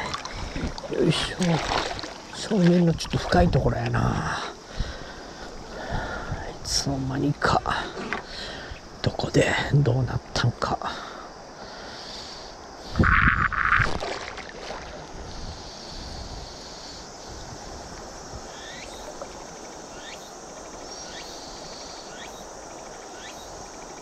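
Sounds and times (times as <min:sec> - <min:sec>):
river water rushing: 0:00.0 - 0:03.4.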